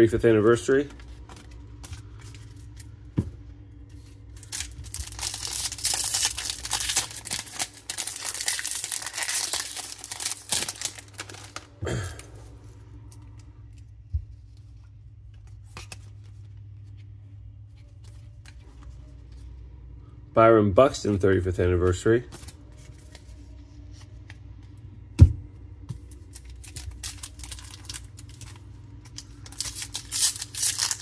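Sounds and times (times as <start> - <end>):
cards being handled: 0.7 - 19.6, 22.2 - 24.8, 25.8 - 31.0
foil wrapper tearing and crinkling: 4.3 - 12.1, 26.2 - 31.0.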